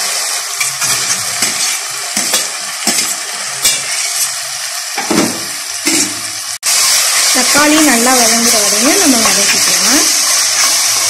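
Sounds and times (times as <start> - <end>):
oil sizzling in a pot: 0.0 - 11.0
steel ladle scraping and knocking pot: 0.6 - 4.3.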